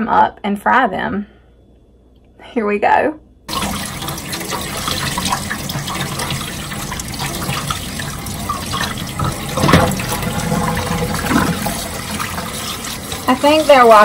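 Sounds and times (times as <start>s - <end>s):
faucet water splashing into colander: 3.5s - 14.0s.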